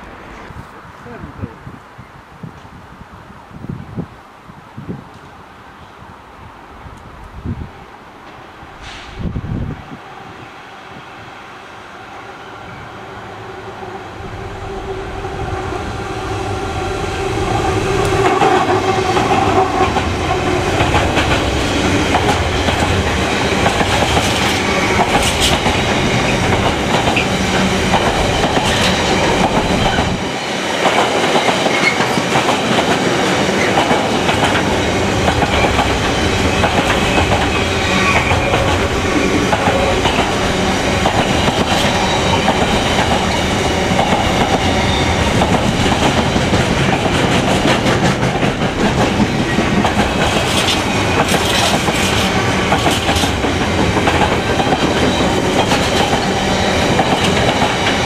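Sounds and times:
diesel locomotive passing: 0.0 - 1.6, 6.7 - 58.0
wheels clacking on rails: 16.4 - 58.0.

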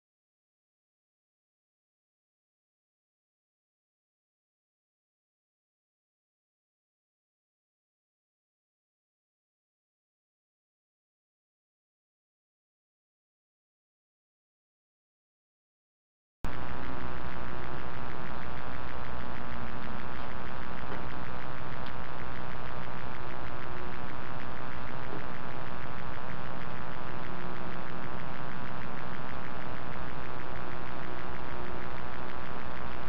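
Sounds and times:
low hum: 16.5 - 33.0.

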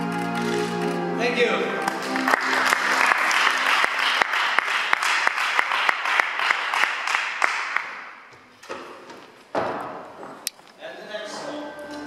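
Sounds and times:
audience applause: 1.9 - 8.0.

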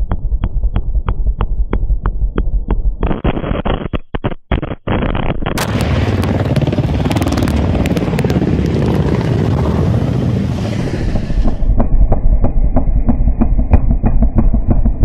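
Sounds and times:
rumbling handling noise: 5.4 - 15.0
rocket blast: 5.6 - 11.8.

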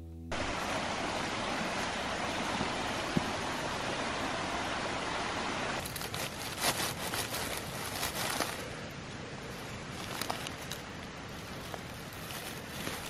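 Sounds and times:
background hiss: 0.0 - 13.0
dry leaves rustling and crackling: 5.8 - 8.8, 9.4 - 13.0.

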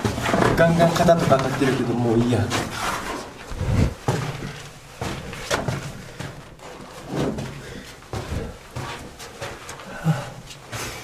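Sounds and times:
footsteps: 0.0 - 11.0.

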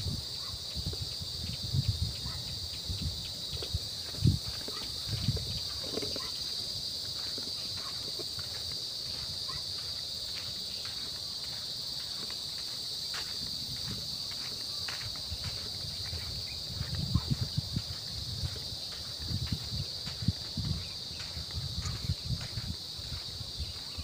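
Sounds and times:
insects chirring: 0.0 - 24.0.

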